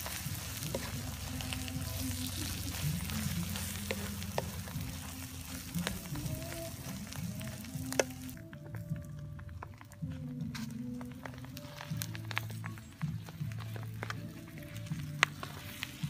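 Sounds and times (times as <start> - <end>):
wooden spatula scraping a pan: 0.0 - 8.3
oil sizzling in a wok: 0.0 - 8.4, 11.3 - 16.0.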